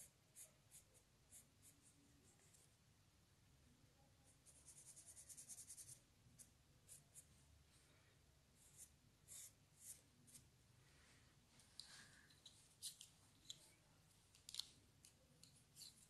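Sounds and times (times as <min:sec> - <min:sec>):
pencil scratching on paper: 0:00.0 - 0:01.9, 0:04.4 - 0:07.3, 0:08.6 - 0:10.4.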